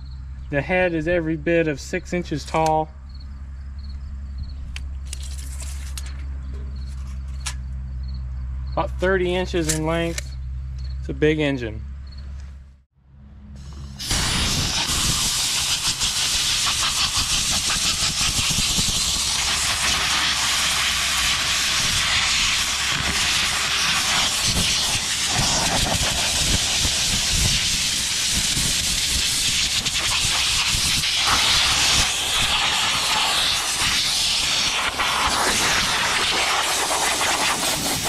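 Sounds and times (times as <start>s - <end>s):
compressed air blow gun hissing: 13.6s - 38.0s.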